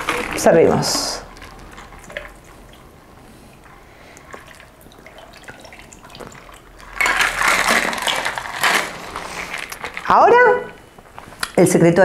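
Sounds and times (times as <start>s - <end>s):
ice clicking: 3.6s - 10.2s
liquid trickling into glass: 3.7s - 8.4s.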